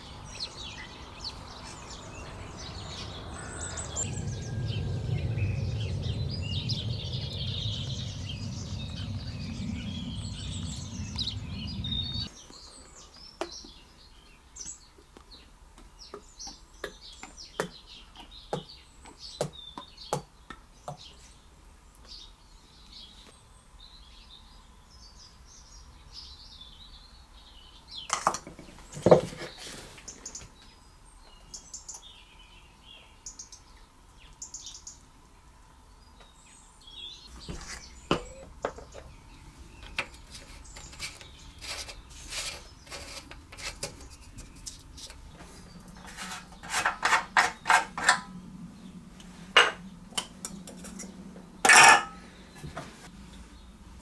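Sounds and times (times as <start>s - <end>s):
faint bird chirping: 0.0s - 28.2s, 28.8s - 49.2s
parts clattering: 39.9s - 48.3s, 50.8s - 52.2s.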